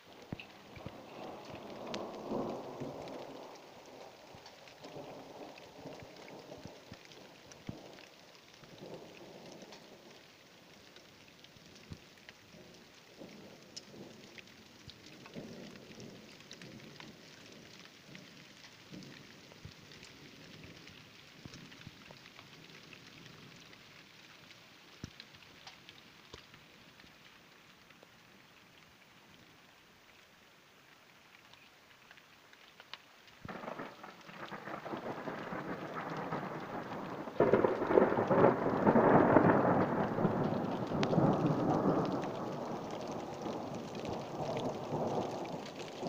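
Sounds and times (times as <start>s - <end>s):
rain falling: 0.0s - 46.0s
raindrops ticking: 0.0s - 46.0s
thunder rumbling: 0.1s - 8.1s, 33.4s - 46.0s.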